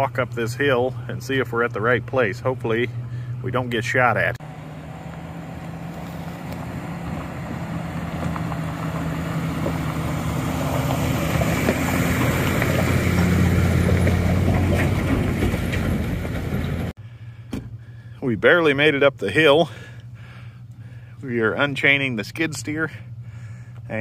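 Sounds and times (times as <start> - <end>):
truck engine under load: 0.0 - 18.1.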